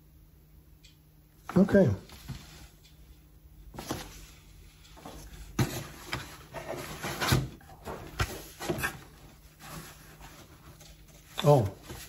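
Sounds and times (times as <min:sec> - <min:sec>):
paper and cardboard rustling: 0:03.7 - 0:04.4, 0:05.0 - 0:12.0.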